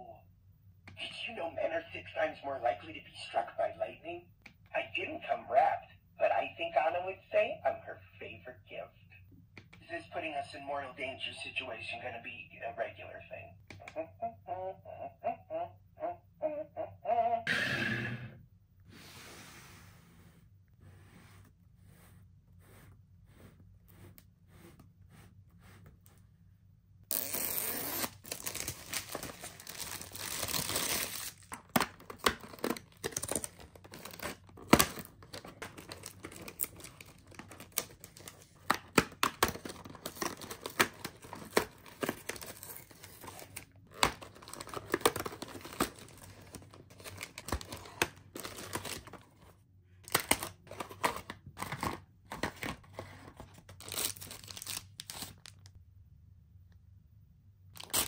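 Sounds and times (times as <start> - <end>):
cardboard tearing: 27.1 - 49.2, 53.3 - 55.5
plastic shrink wrap crinkling: 27.1 - 49.4, 53.3 - 55.8.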